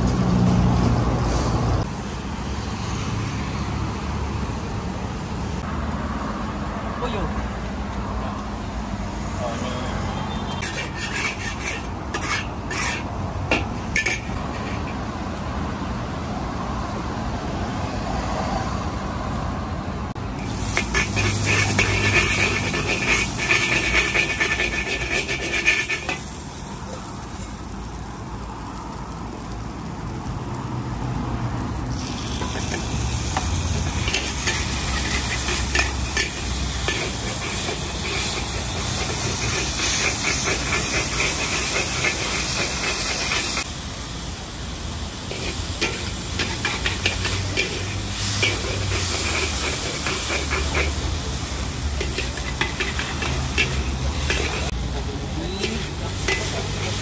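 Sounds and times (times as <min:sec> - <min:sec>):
metal spatula scraping pan: 0:10.6 - 0:15.0, 0:20.4 - 0:26.4, 0:32.3 - 0:43.6, 0:45.3 - 0:51.0, 0:52.0 - 0:54.8, 0:55.6 - 0:57.0
noodles sizzling in a wok: 0:10.6 - 0:15.0, 0:20.3 - 0:57.0.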